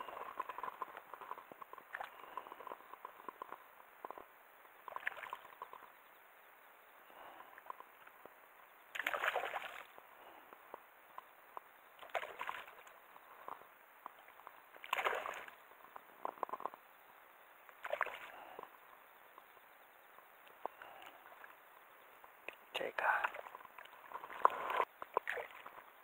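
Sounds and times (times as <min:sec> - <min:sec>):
water sloshing and splashing: 0:04.9 - 0:05.8, 0:08.9 - 0:10.0, 0:12.0 - 0:15.6, 0:17.7 - 0:18.6, 0:23.2 - 0:26.0.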